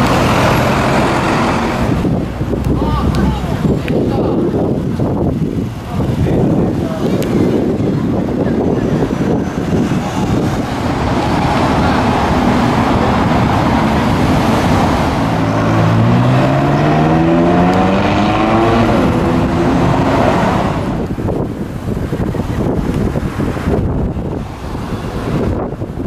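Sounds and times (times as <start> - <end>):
sports car engine accelerating: 0.0 - 4.1, 9.0 - 21.4
street traffic rushing: 0.0 - 26.0.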